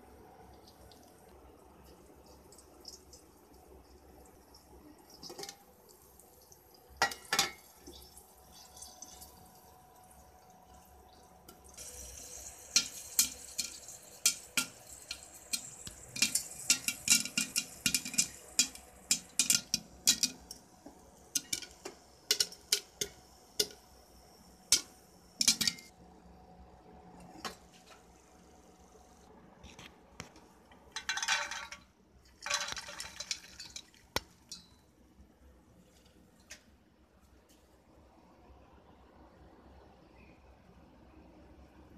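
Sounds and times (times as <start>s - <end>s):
hot oil sizzling: 0.0s - 25.9s
popcorn popping: 4.6s - 6.1s, 6.9s - 25.9s, 29.6s - 34.8s
metal lid clacking on pot: 21.4s - 23.8s, 24.7s - 25.9s.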